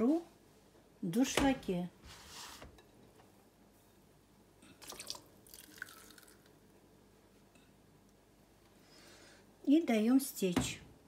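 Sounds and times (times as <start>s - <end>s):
water splashing and trickling into sieve: 4.8s - 6.5s.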